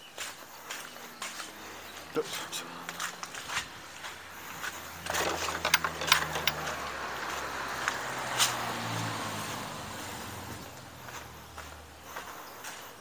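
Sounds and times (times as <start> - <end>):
car engine hum driving past: 2.6 - 12.1
sharp clicks and knocks: 5.0 - 6.9.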